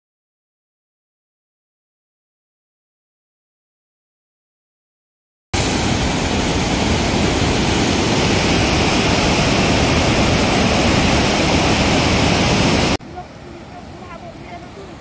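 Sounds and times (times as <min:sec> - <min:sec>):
water crashing from spillway: 0:05.6 - 0:15.0.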